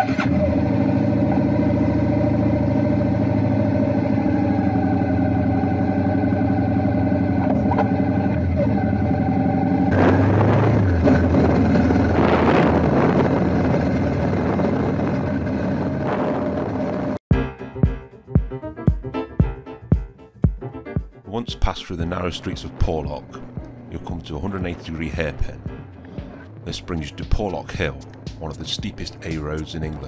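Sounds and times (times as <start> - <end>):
motorcycle riding off: 0.0 - 17.2, 22.1 - 30.0
motorcycle engine idling: 22.6 - 30.0.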